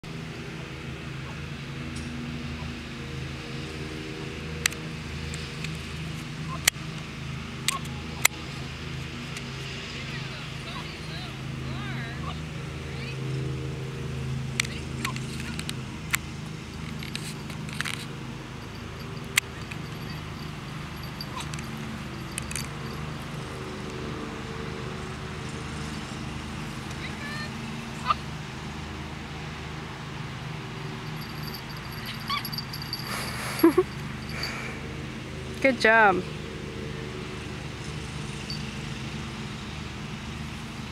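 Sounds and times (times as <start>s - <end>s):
low engine hum: 0.1s - 40.9s
puppy yipping: 21.1s - 21.7s, 32.0s - 33.8s
puppy yapping: 32.0s - 32.6s.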